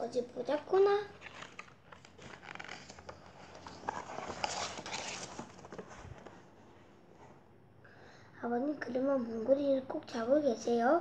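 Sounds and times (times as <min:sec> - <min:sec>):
paper pages turning: 0:01.1 - 0:06.4.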